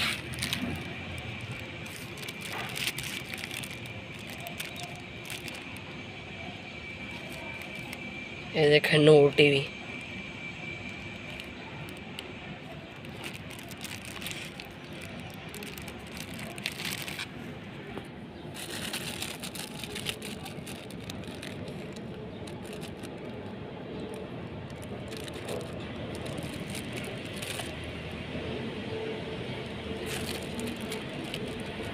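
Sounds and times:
faint clicks and crackles: 0:00.0 - 0:06.0, 0:07.0 - 0:08.2, 0:10.7 - 0:28.0, 0:29.5 - 0:31.9
low rumble and hiss: 0:00.0 - 0:31.9.

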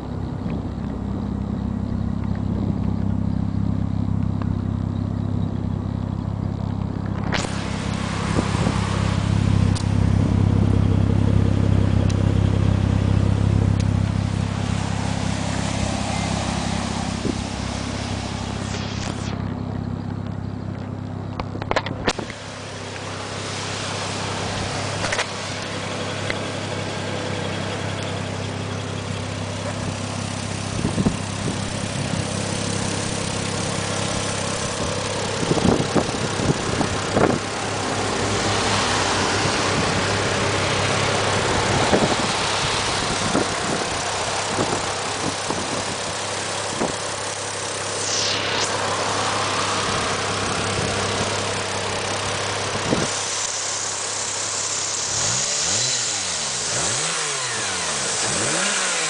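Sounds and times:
car engine idling: 0:00.0 - 0:59.0
rushing hiss: 0:14.2 - 0:19.4, 0:22.3 - 0:26.9, 0:31.7 - 0:59.0.

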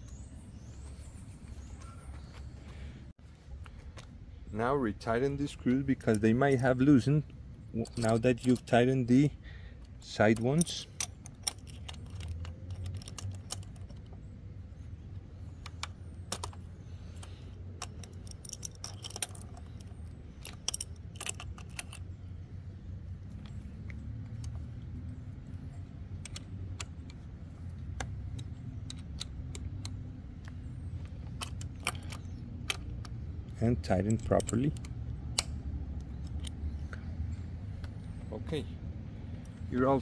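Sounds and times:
low steady rumble: 0:00.0 - 0:40.0
metal hand tools clinking: 0:07.8 - 0:09.1.

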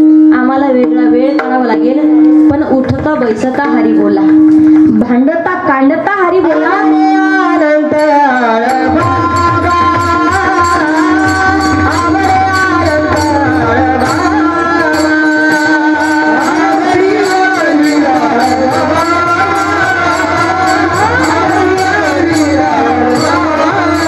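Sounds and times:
voices singing long notes: 0:06.5 - 0:24.0
hand cymbals struck: 0:06.8 - 0:24.0
drum: 0:08.8 - 0:24.0.

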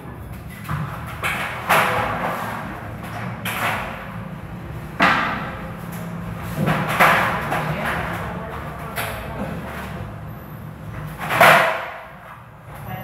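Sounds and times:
steady low hum: 0:00.0 - 0:13.0
metal stepladder clanking on floor: 0:00.5 - 0:04.3.

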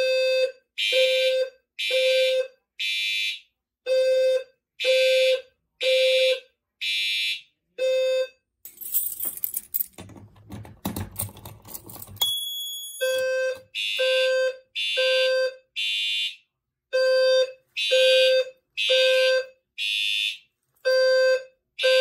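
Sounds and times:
fire alarm horn pulses: 0:00.0 - 0:08.4, 0:13.0 - 0:22.0
rustling handling noise: 0:08.7 - 0:12.2.

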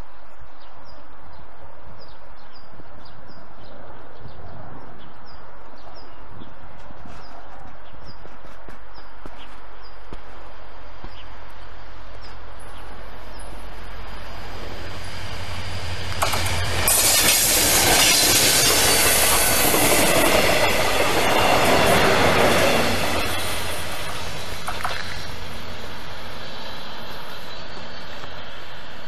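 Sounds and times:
diesel train passing: 0:10.4 - 0:29.0.

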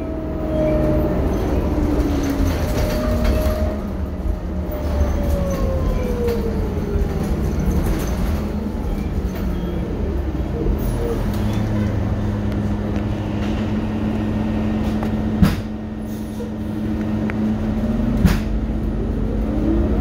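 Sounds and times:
bus rumble and road noise: 0:00.0 - 0:20.0.

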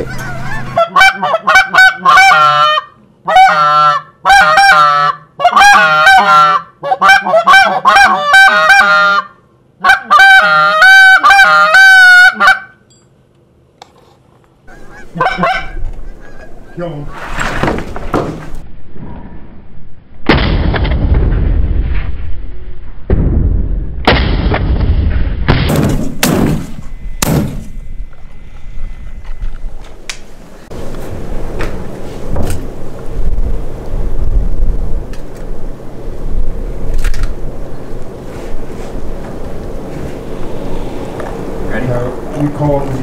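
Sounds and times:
goose call honks and clucks: 0:00.0 - 0:12.8, 0:14.7 - 0:17.2
shotgun shot: 0:20.2 - 0:21.6, 0:23.1 - 0:27.7.

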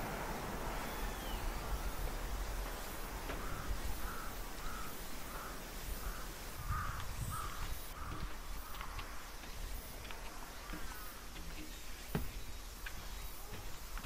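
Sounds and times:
crow cawing: 0:03.1 - 0:09.4, 0:10.6 - 0:11.3.

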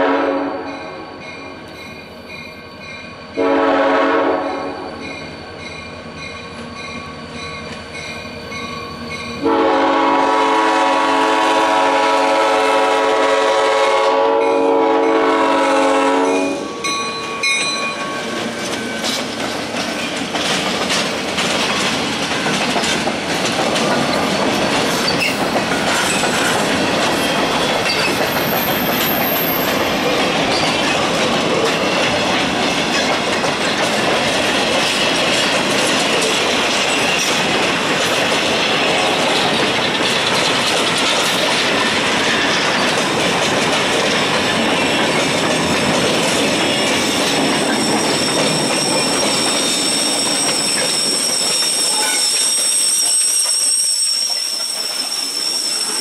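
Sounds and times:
locomotive air horn blasts: 0:00.0 - 0:01.1, 0:03.4 - 0:05.0, 0:09.4 - 0:16.8
train rolling past: 0:00.0 - 0:56.0
wheels clicking over rail joints: 0:16.8 - 0:52.5.

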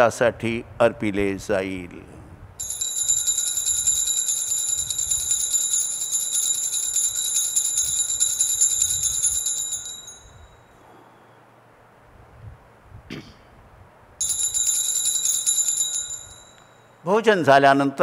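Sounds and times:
altar bells jingling: 0:02.6 - 0:10.8, 0:14.2 - 0:17.0.

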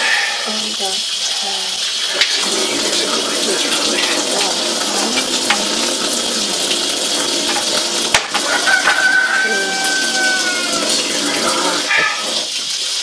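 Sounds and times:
tap water running: 0:00.0 - 0:13.0.

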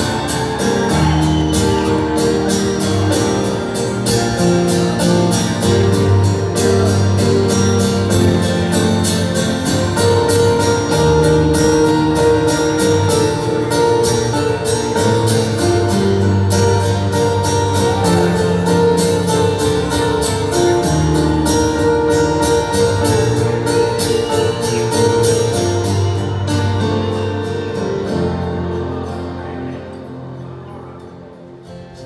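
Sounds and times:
acoustic guitar strumming: 0:00.0 - 0:32.0
sustained keyboard chords: 0:00.0 - 0:32.0.

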